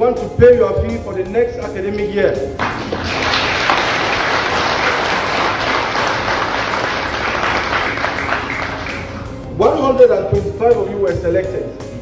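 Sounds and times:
crowd applauding: 2.6s - 9.4s.

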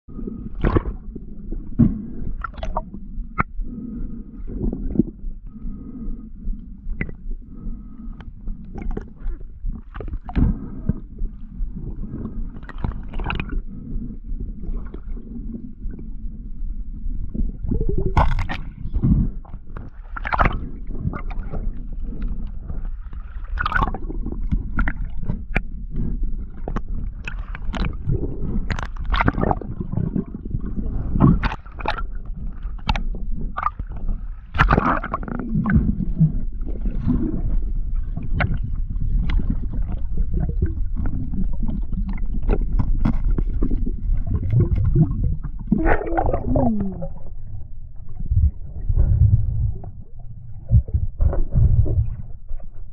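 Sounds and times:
underwater rumble of moving water: 0.0s - 52.9s
gurgling bubbles: 0.1s - 5.2s, 8.6s - 16.1s, 17.2s - 52.8s.

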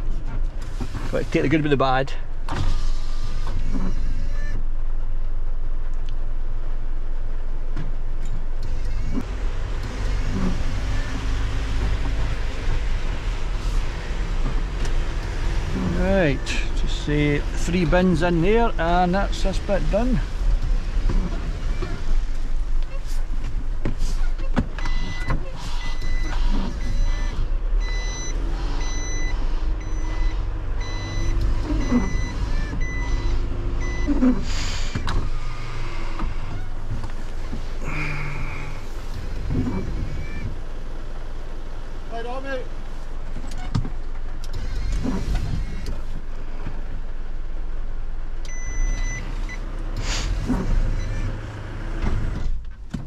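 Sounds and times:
diesel engine hum: 0.0s - 53.0s
reversing alarm beeping: 24.8s - 34.3s, 48.5s - 49.6s
brief hiss: 50.0s - 50.5s.

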